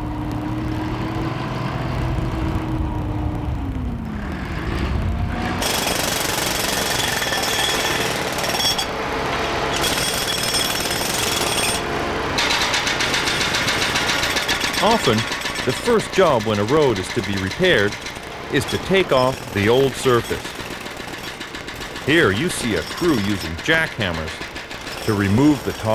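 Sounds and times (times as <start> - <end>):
engine running: 0.0 - 25.9
pneumatic jackhammers hammering: 5.6 - 25.9.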